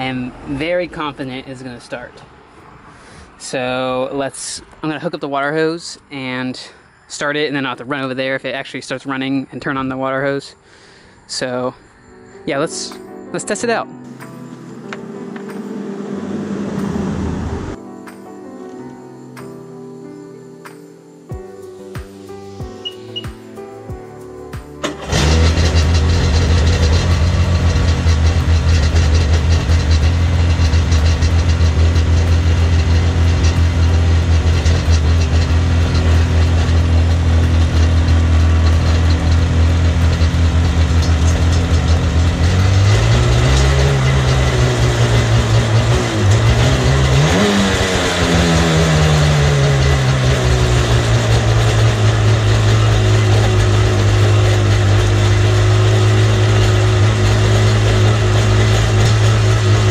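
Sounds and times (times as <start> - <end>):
jet ski engine idling and revving: 15.9 - 17.8, 24.8 - 59.9.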